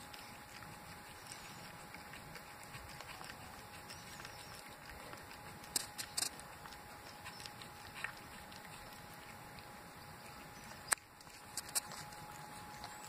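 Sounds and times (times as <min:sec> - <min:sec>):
cat chewing and licking: 0:00.0 - 0:13.0
small clicks: 0:02.7 - 0:09.3, 0:10.3 - 0:13.0.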